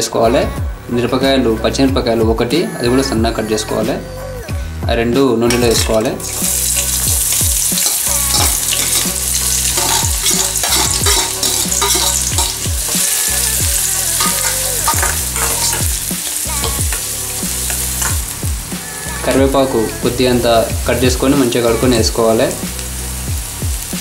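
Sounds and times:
onions sizzling in hot oil: 0:05.6 - 0:24.0
steel spoon scraping pan: 0:05.7 - 0:18.2.

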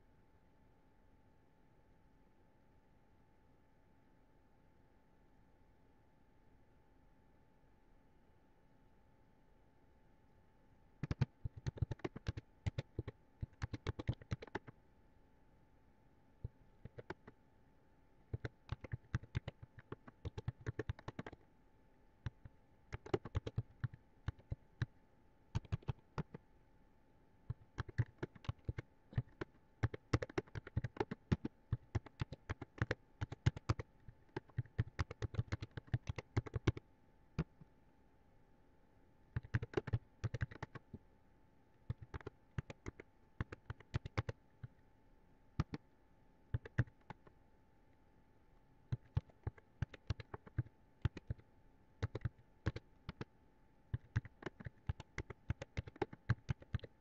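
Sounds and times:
faint steady hum: 0:00.0 - 0:57.0
keyboard typing: 0:11.0 - 0:14.7, 0:16.4 - 0:17.4, 0:18.3 - 0:21.4, 0:22.2 - 0:24.9, 0:25.5 - 0:26.4, 0:27.5 - 0:36.8, 0:39.3 - 0:41.0, 0:41.8 - 0:44.8, 0:45.6 - 0:45.8, 0:46.6 - 0:47.3, 0:48.9 - 0:51.4, 0:52.0 - 0:53.3, 0:53.9 - 0:57.0.

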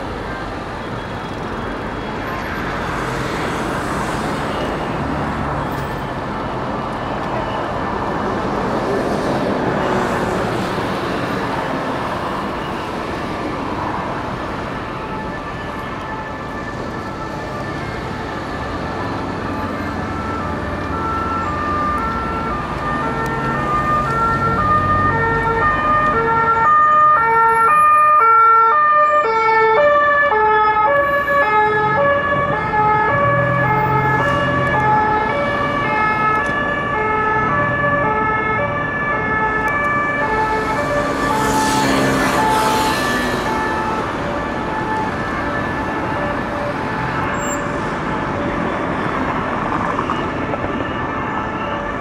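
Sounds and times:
two-tone siren: 0:14.0 - 0:52.0.

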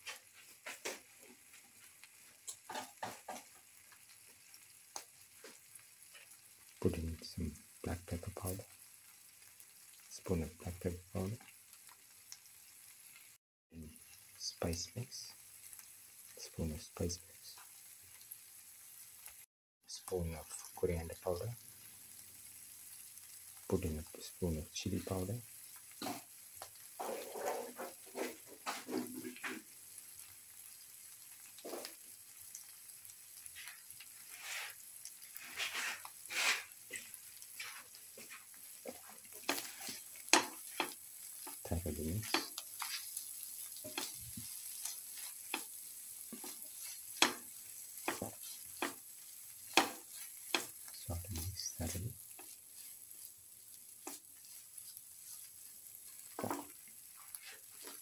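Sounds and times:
frying sizzle: 0:00.0 - 0:58.0
spatula scraping pan: 0:26.0 - 0:29.7, 0:33.4 - 0:58.0.

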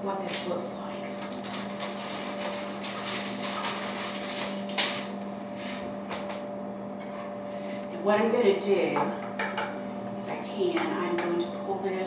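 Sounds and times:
aluminium foil crinkling: 0:01.2 - 0:05.1.

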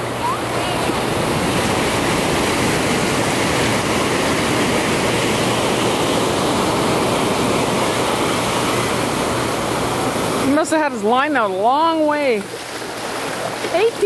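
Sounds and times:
ocean surf breaking: 0:00.0 - 0:14.0.

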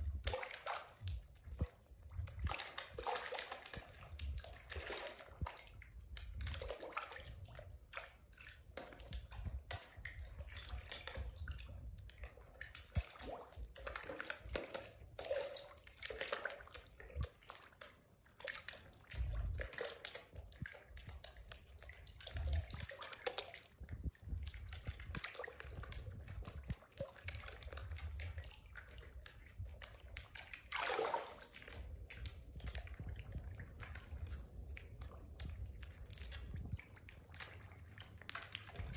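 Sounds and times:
water dripping: 0:00.0 - 0:38.9
fish splashing at water surface: 0:30.2 - 0:32.2.

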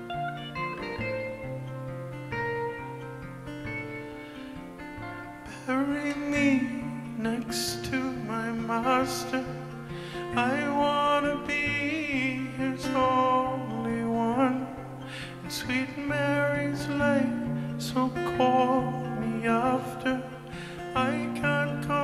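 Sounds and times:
electric guitar: 0:00.0 - 0:22.0
man singing into a microphone: 0:05.5 - 0:22.0.

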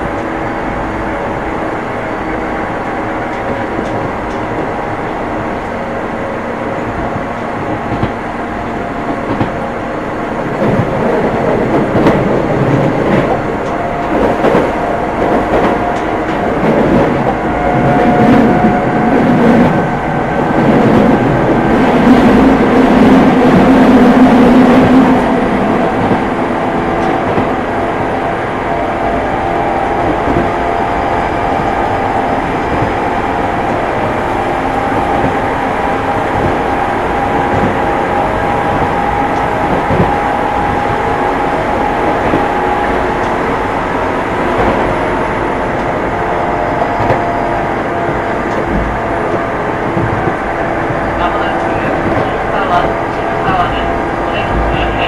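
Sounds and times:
train wheels rumbling on rail: 0:00.0 - 0:55.0
rail-joint clicks: 0:03.2 - 0:04.7, 0:07.0 - 0:08.2, 0:09.1 - 0:09.6, 0:10.6 - 0:19.8, 0:26.9 - 0:27.6, 0:34.9 - 0:46.1, 0:46.8 - 0:55.0.

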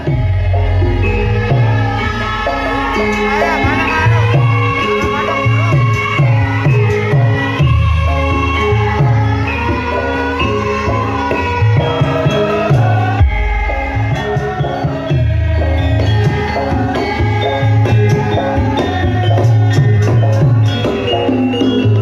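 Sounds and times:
tuned percussion melody: 0:00.0 - 0:22.0
low drum strokes: 0:13.2 - 0:15.5.

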